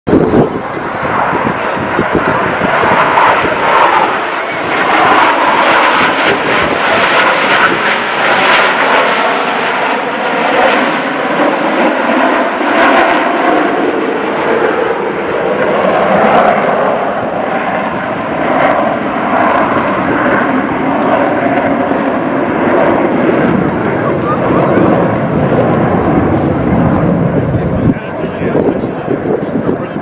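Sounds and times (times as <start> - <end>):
loud jet engine noise: 0.1 - 30.0.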